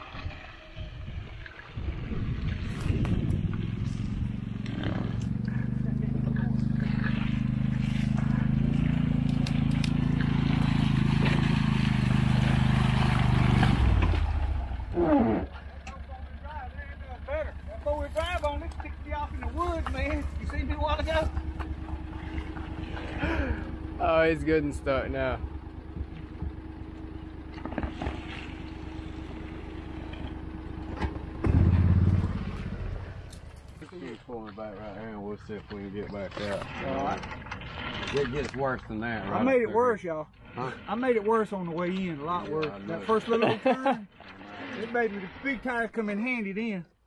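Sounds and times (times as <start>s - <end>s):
vehicle driving through mud: 0.0s - 34.0s
utility vehicle engine running: 0.0s - 45.7s.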